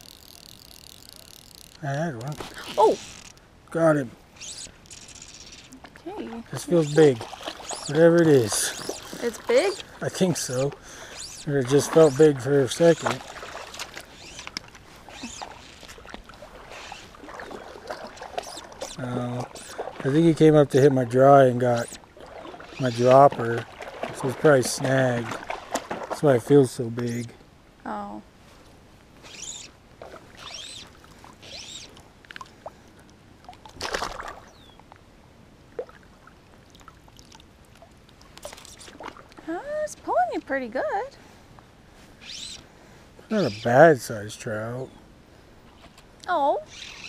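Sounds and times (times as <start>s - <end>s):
fly line clicks and rustles: 0.0s - 3.5s, 4.4s - 6.0s, 6.8s - 19.8s, 28.6s - 35.0s, 36.8s - 39.4s
water lapping and sloshing: 4.2s - 27.2s, 28.4s - 39.7s.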